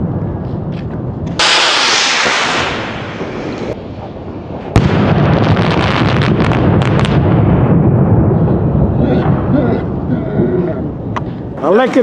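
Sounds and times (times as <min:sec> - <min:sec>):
echoing rumble: 0:00.0 - 0:11.6
firework bang: 0:01.3 - 0:03.8, 0:04.6 - 0:09.6
firework rocket whoosh: 0:01.3 - 0:09.0.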